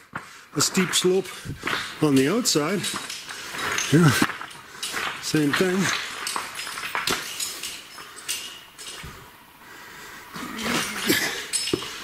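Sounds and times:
stones clinking: 0:01.6 - 0:09.2, 0:10.9 - 0:12.0.

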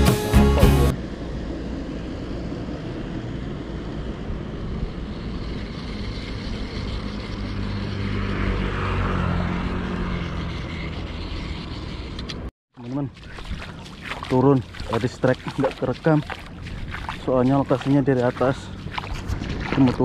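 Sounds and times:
engine drone: 0:00.0 - 0:20.0.

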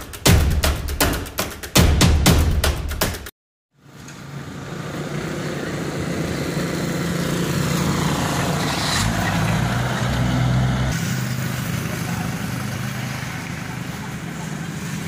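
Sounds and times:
road noise: 0:03.8 - 0:15.0
dump truck engine hum: 0:04.2 - 0:15.0.

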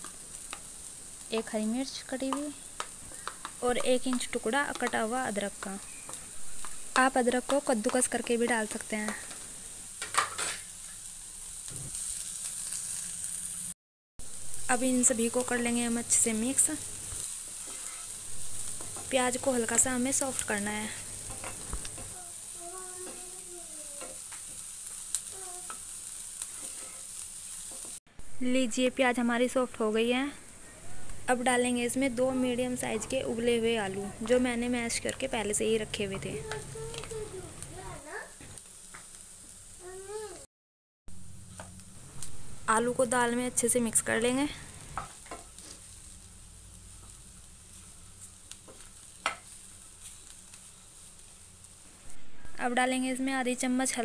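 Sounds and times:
onions sizzling in oil: 0:00.0 - 0:40.5, 0:41.1 - 0:54.0
spatula scraping pan: 0:17.6 - 0:19.2.

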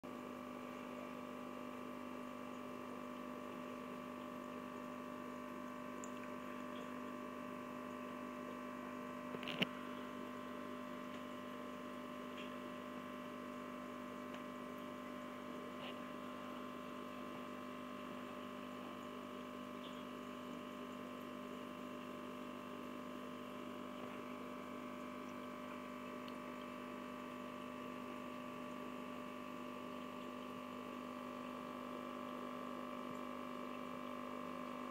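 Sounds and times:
aquarium equipment humming: 0:00.0 - 0:34.9
faint water sound: 0:00.0 - 0:34.9.

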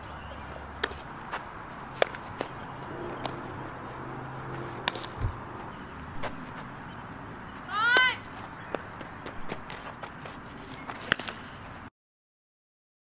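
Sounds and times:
low outdoor background: 0:00.0 - 0:11.9
softball smacks: 0:02.0 - 0:02.6, 0:04.8 - 0:05.2, 0:11.0 - 0:11.4
dull low thump: 0:02.8 - 0:06.4.

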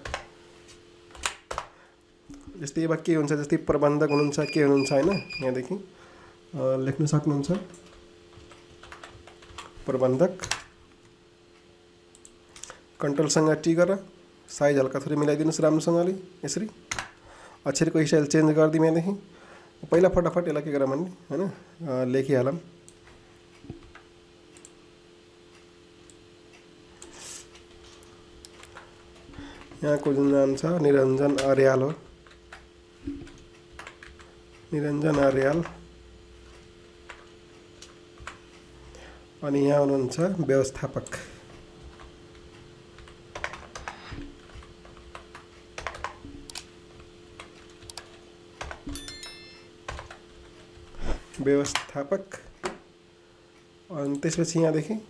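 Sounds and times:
low steady hum: 0:00.0 - 0:55.0
computer mouse and keyboard clicks: 0:43.0 - 0:46.7, 0:47.4 - 0:49.0.

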